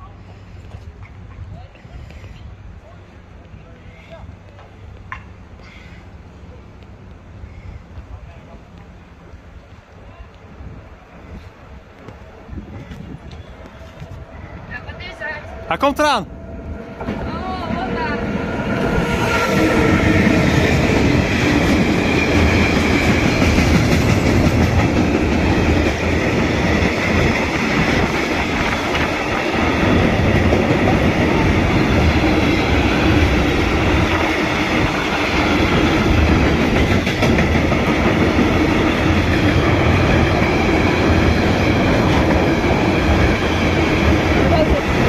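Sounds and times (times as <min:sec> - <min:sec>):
freight train wheels rolling on rails: 0:00.0 - 0:45.0
clickety-clack over rail joints: 0:00.2 - 0:02.5, 0:03.4 - 0:06.0, 0:19.2 - 0:45.0.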